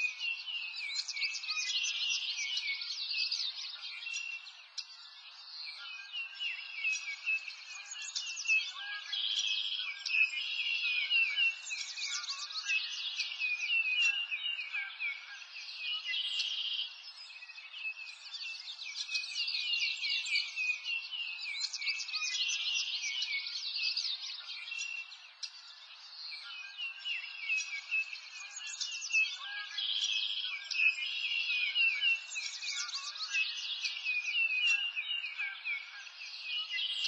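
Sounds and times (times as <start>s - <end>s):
small birds chirping and trilling: 0.0s - 37.0s.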